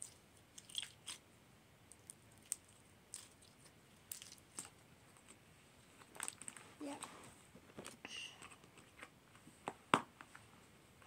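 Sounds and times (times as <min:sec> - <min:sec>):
slime squishing between fingers: 0:00.0 - 0:01.2.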